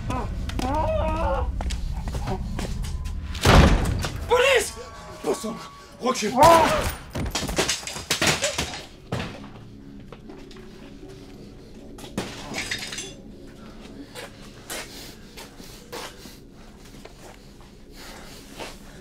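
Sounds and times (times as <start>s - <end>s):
low steady drone: 0.0s - 7.2s, 8.8s - 19.0s
crashing and breaking impacts: 3.3s - 4.4s, 6.4s - 9.4s.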